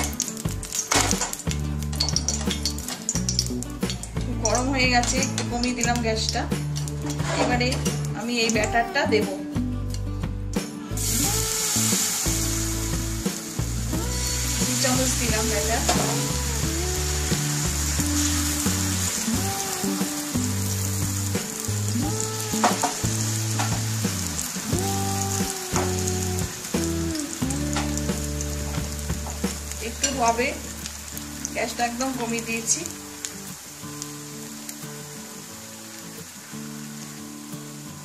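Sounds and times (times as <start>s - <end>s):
batter sizzling in oil: 0.0s - 8.8s, 10.9s - 38.0s
low background music: 0.0s - 38.0s.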